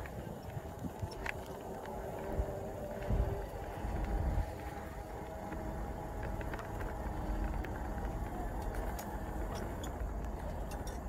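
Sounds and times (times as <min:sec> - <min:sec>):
faint steady whine: 0:00.0 - 0:11.0
wheelchair rolling on gravel: 0:00.0 - 0:11.0.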